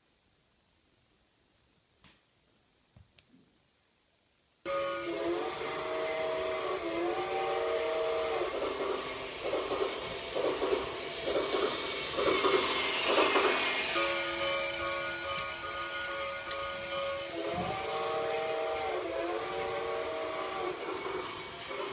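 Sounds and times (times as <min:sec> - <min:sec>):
toy train steam chuffing: 0:04.7 - 0:21.9
toy train steam whistle: 0:04.7 - 0:21.9.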